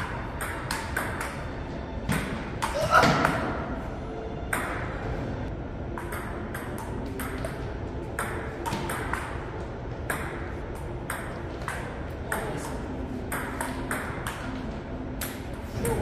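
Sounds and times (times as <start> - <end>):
ping-pong ball clicking: 0.4 - 1.4, 6.0 - 7.6, 8.2 - 9.4, 10.1 - 14.6.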